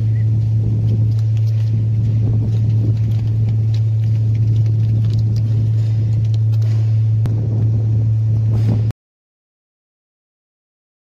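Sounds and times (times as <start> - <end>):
low mechanical drone: 0.0 - 9.0.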